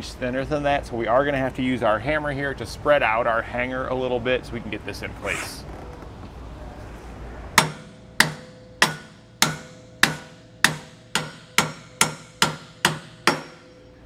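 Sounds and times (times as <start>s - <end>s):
hammer striking steel: 7.6s - 13.9s
faint metallic ring: 13.5s - 14.0s.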